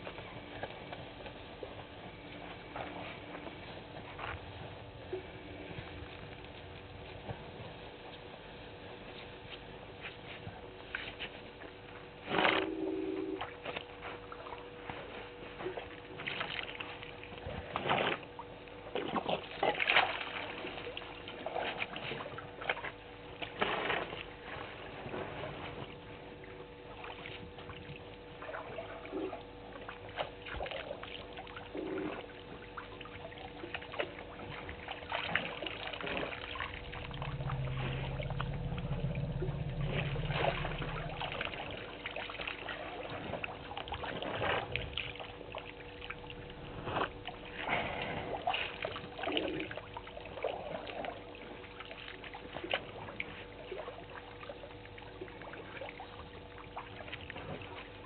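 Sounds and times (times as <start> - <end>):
elephant low rumble: 0.0 - 13.6, 34.6 - 49.8
faint steady hum: 0.0 - 58.0
water trickling and splashing: 13.8 - 58.0.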